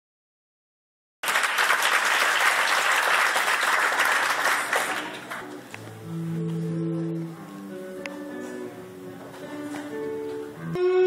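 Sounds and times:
small audience applauding: 1.2s - 5.7s
acoustic guitar music: 5.1s - 11.0s.

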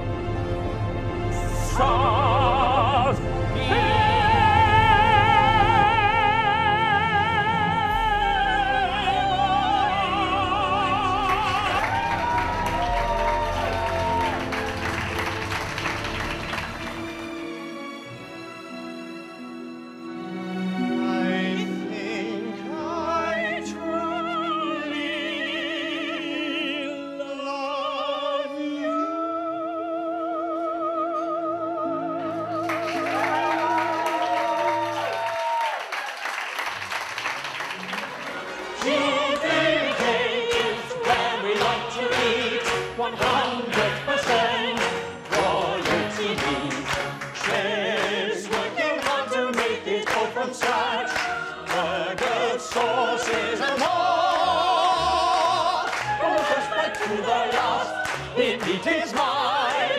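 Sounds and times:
operatic singing: 0.0s - 35.7s, 37.8s - 59.9s
rhythmic clapping: 10.3s - 17.7s, 32.6s - 59.9s
handclapping: 11.2s - 17.3s, 32.7s - 54.0s, 55.4s - 59.9s.

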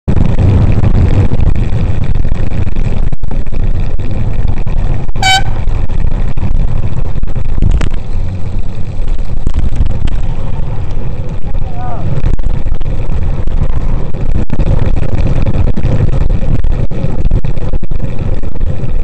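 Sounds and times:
traffic road noise: 0.1s - 19.0s
wind buffeting microphone: 0.1s - 19.0s
short high horn toot: 5.2s - 5.7s.

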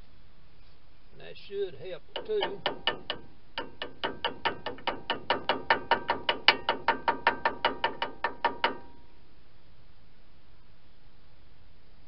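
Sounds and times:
ratchet wrench clicking: 2.2s - 8.8s.

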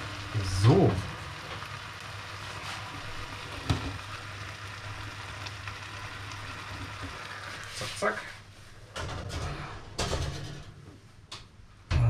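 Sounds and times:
roast sizzling in a pan: 0.0s - 8.5s.

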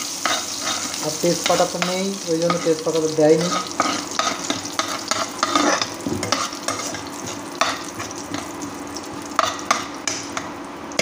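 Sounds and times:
metal spoon scraping a pan: 0.0s - 8.5s
spices sizzling in hot oil: 0.0s - 11.0s.

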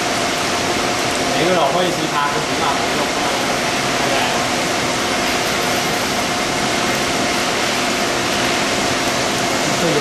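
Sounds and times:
coolant spray and cutting noise: 0.0s - 10.0s
spindle hum and whine: 0.0s - 10.0s.

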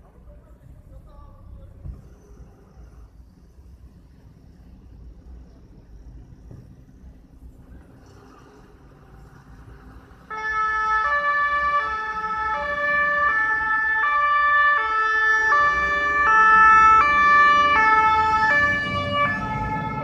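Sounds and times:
truck engine: 0.0s - 20.0s
two-tone fire truck siren: 10.1s - 20.0s.

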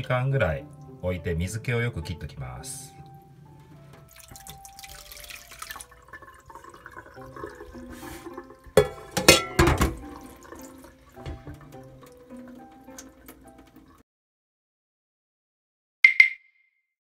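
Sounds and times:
water dripping and trickling: 0.0s - 1.0s, 3.8s - 14.0s
knocks and wet splatter: 3.9s - 14.0s.

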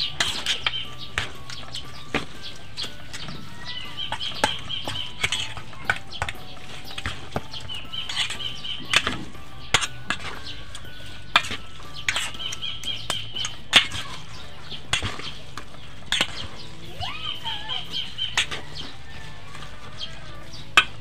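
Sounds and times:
metal spoon clinking in steel bowl: 4.1s - 14.1s.

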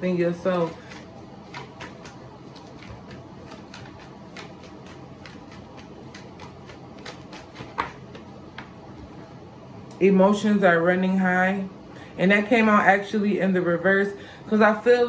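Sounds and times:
cards shuffling and snapping: 0.7s - 8.8s.

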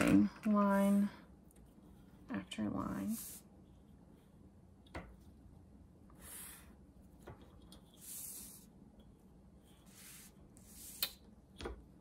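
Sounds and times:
marker scratching on paper: 9.6s - 11.1s.

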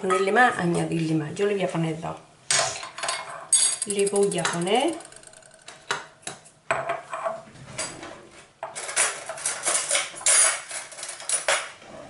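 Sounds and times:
cutlery clattering in drawer: 8.7s - 11.8s.

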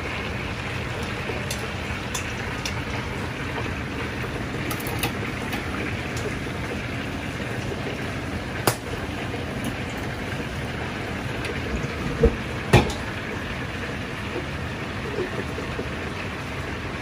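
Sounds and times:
oil deep-frying hiss: 0.0s - 17.0s
metal utensils clacking: 1.4s - 2.8s, 4.7s - 5.6s.

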